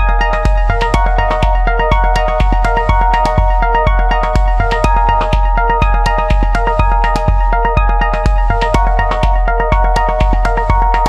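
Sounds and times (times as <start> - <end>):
held synthesizer notes: 0.0 - 11.0
kick drum beat: 0.0 - 11.0.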